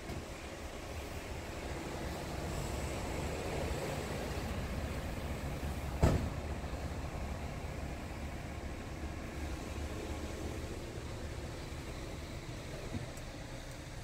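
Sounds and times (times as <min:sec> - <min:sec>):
truck engine idling: 0:00.0 - 0:14.0
sharp thump: 0:06.0 - 0:06.4.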